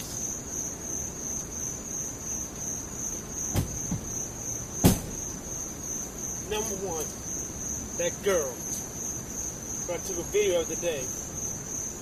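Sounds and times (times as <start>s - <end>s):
crickets chirping: 0.0s - 12.0s
sharp knock: 3.5s - 4.1s, 4.8s - 5.2s.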